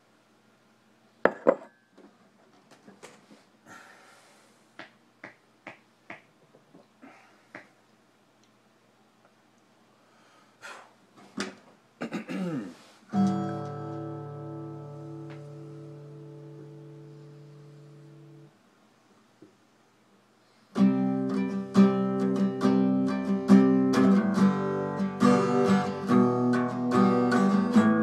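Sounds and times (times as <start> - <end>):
acoustic guitar chord strummed: 13.1 - 18.5, 20.7 - 28.0.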